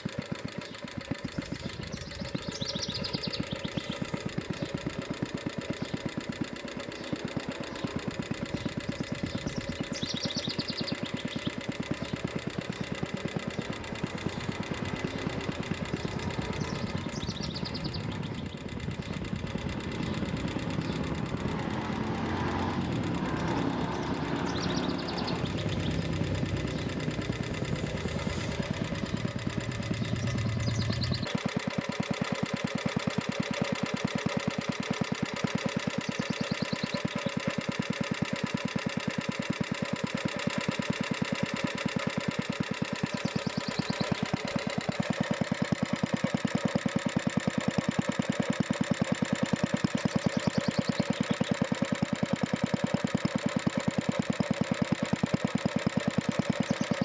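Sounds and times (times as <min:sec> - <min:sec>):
single-cylinder engine running: 0:00.0 - 0:57.0.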